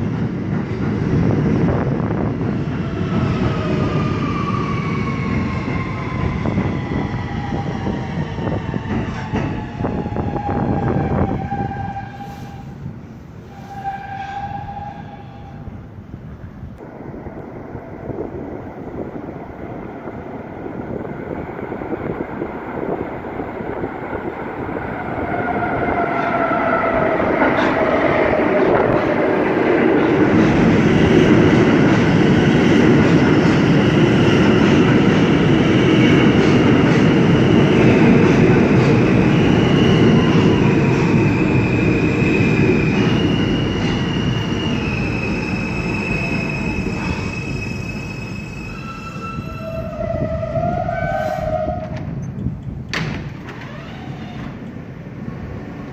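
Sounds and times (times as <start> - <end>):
subway train rumbling: 0.0 - 55.9
train wheels squealing: 13.4 - 15.6, 38.8 - 52.5.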